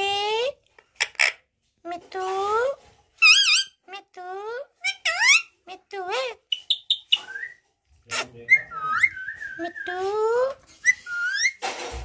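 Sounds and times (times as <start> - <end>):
parakeet whistling and calling: 3.2 - 3.8, 6.5 - 11.6.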